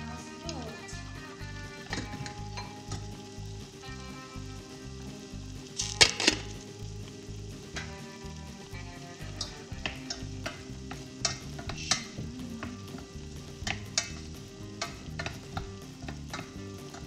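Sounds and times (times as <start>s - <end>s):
wooden spoon stirring food: 1.6s - 17.0s.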